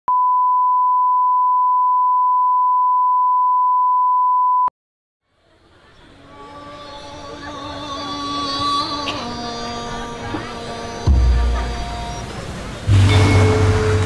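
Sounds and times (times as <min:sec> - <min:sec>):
pure reference test tone: 0:12.9 - 0:14.0.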